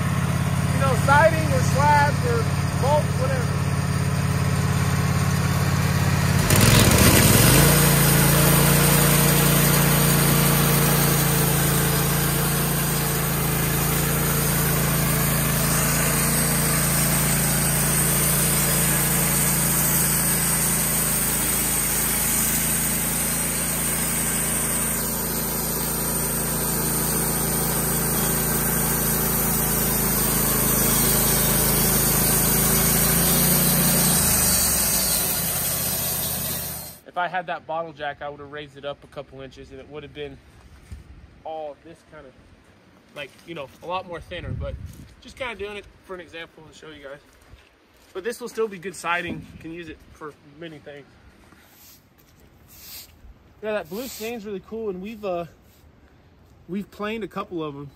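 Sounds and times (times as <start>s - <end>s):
sawmill engine running: 0.0s - 37.0s, 48.5s - 50.4s
band blade cutting log: 6.3s - 37.0s, 52.7s - 55.3s.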